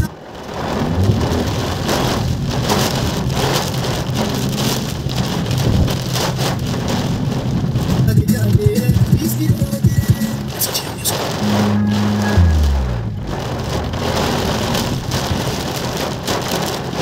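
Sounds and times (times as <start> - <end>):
heavy rain pouring: 0.0 - 17.0.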